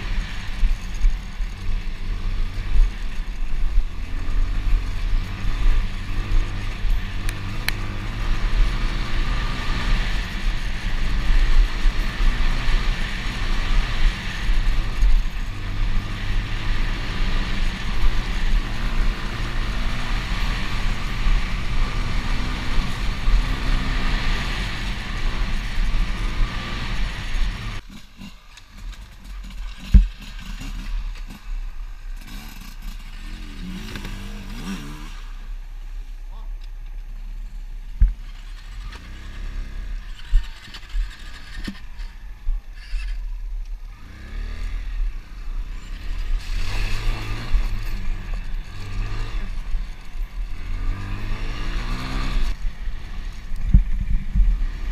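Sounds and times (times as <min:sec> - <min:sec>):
dirt bike engine running hard: 0:00.0 - 0:35.6, 0:37.1 - 0:54.9
wind rumbling on microphone: 0:37.9 - 0:54.9.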